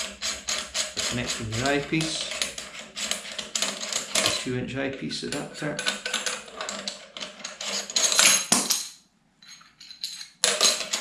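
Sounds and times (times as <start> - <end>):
metal and plastic fittings clinking: 3.5 - 4.4.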